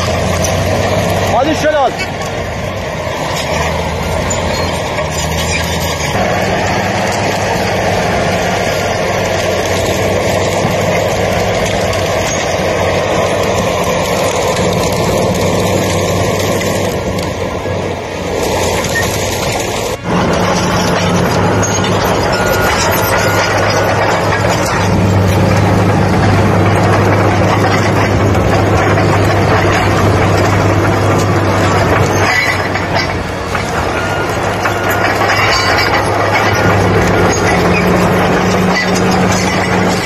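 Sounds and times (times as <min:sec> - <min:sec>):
diesel engine running: 0:00.0 - 0:40.0
roaring wind and fire: 0:00.0 - 0:40.0.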